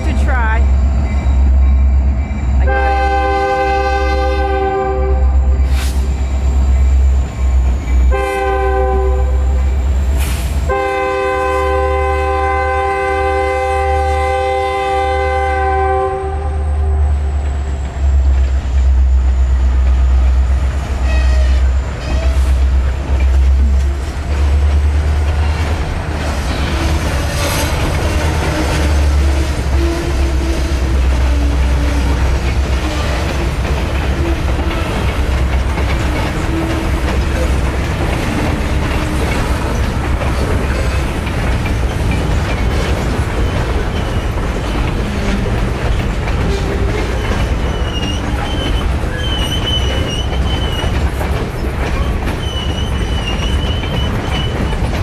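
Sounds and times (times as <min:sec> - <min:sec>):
freight cars rumbling: 0:00.0 - 0:55.0
locomotive horn blasts: 0:02.6 - 0:05.5, 0:08.1 - 0:09.6, 0:10.7 - 0:17.0
wheels clicking over rail joints: 0:17.2 - 0:55.0.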